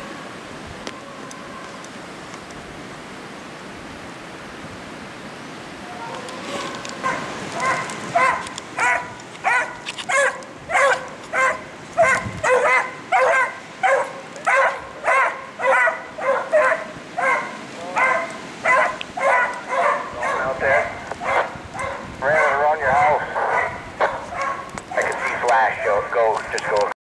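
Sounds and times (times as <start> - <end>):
beagle baying: 7.0 - 25.9.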